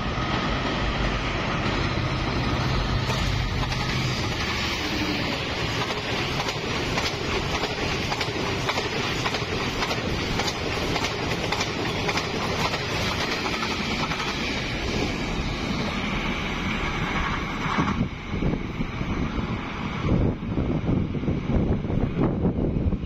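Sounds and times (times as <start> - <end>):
diesel locomotive passing: 0.0 - 23.0
train rushing past: 0.0 - 23.0
wheels clicking over rail joints: 5.2 - 14.4.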